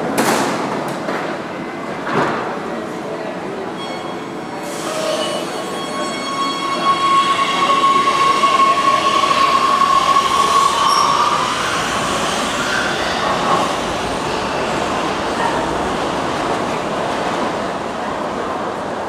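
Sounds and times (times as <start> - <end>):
high-pitched wheel squeal: 4.7 - 13.3
train rumble: 7.4 - 19.0.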